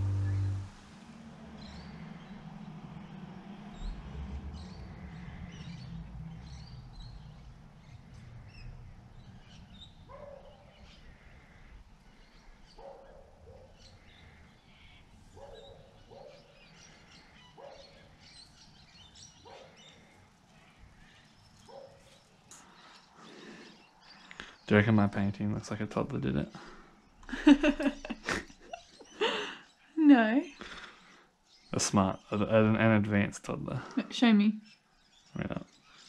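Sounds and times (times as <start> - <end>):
lower bird call: 0.0 - 2.6
low rumble: 0.0 - 9.4.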